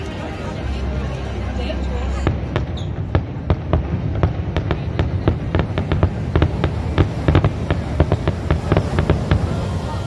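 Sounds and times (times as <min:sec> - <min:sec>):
low rumble: 0:00.6 - 0:10.0
fireworks bangs: 0:02.2 - 0:10.0.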